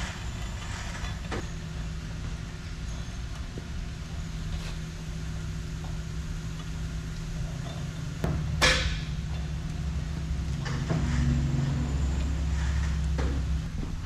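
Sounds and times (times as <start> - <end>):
engine running steadily: 0.0 - 14.0
loud metal clank: 7.7 - 9.5.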